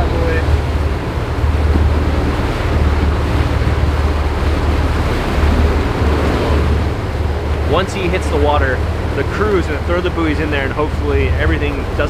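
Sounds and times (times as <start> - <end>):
boat wake rushing: 0.0 - 12.0
wind buffeting microphone: 0.0 - 12.0.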